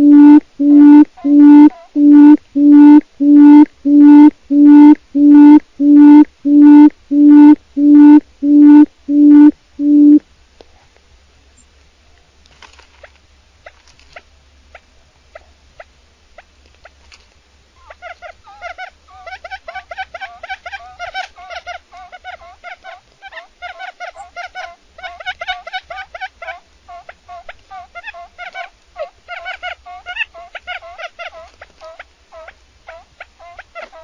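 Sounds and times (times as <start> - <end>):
quail low hooting calls: 0.0 - 10.2, 17.8 - 34.0.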